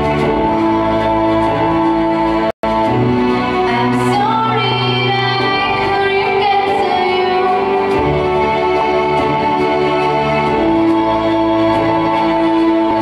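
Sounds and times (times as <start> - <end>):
backing music: 0.0 - 13.0.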